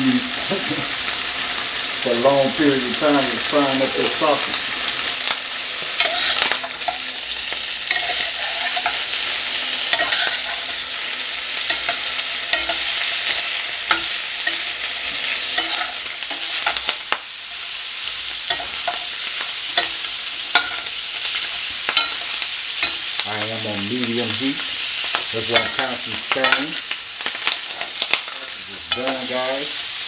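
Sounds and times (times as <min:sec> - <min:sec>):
sausage sizzling in oil: 0:00.0 - 0:30.0
metal spoon scraping pan: 0:06.0 - 0:07.0, 0:07.8 - 0:10.8, 0:11.6 - 0:16.9, 0:18.2 - 0:23.2.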